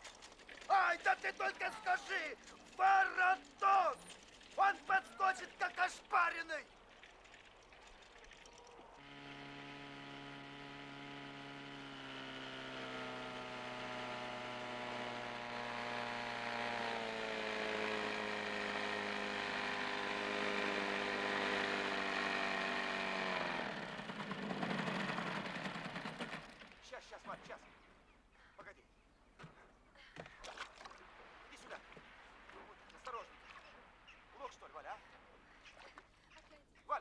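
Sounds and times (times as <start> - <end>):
motorboat engine running: 2.8 - 26.8.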